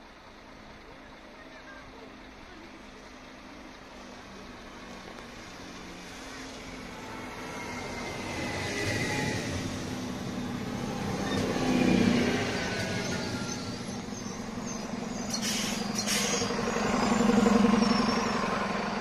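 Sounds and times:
diesel railcar passing: 0.0s - 19.0s
high-pitched squeal: 7.0s - 19.0s.

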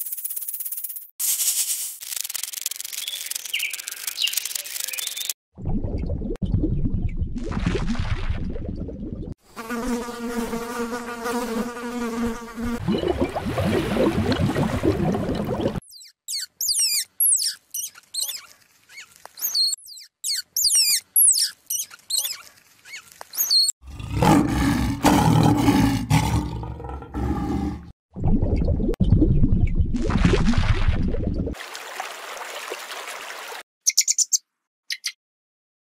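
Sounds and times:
buzz: 9.4s - 12.8s
ground squirrels chirping: 15.9s - 23.7s, 33.9s - 35.2s
lioness growling: 23.8s - 27.9s.

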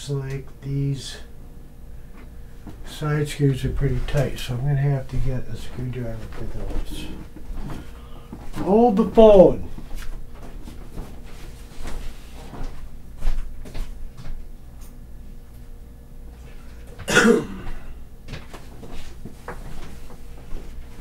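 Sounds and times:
person coughing: 17.0s - 18.0s.

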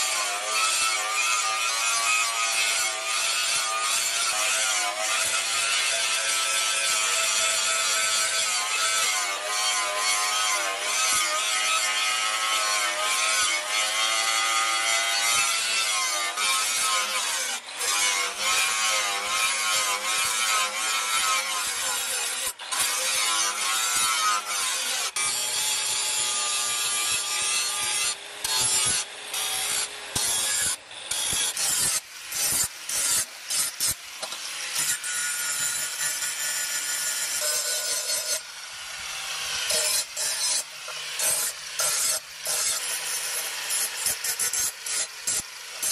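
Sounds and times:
angle grinder cutting steel: 0.0s - 45.9s.

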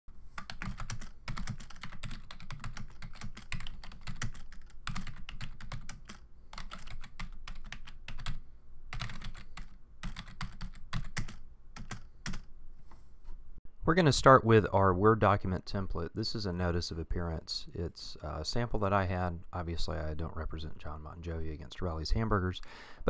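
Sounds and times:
typing on computer keyboard: 0.4s - 12.5s.

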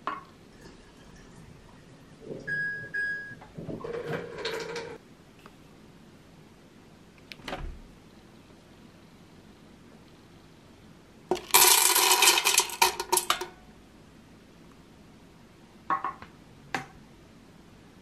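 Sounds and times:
dried beans rattling into plastic cup: 11.3s - 13.4s.

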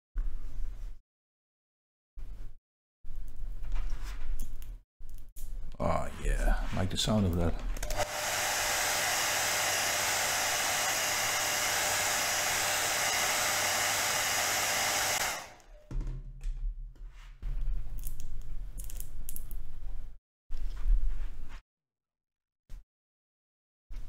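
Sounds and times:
hot-air blower running: 7.8s - 15.8s.

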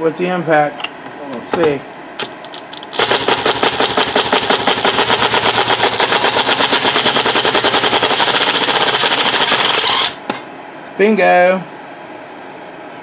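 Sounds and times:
impact driver hammering: 2.2s - 10.4s.

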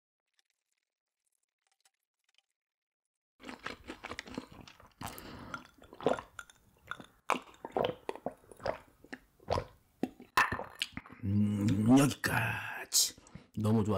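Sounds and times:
person chewing food: 3.4s - 11.8s.

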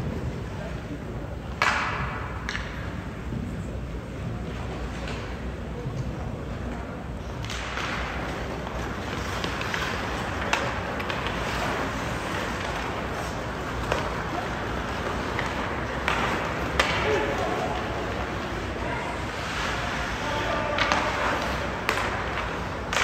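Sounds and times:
low rink rumble: 0.0s - 23.0s
sticks and puck clacking: 1.3s - 3.4s, 4.4s - 23.0s
skate blades scraping ice: 7.5s - 23.0s.

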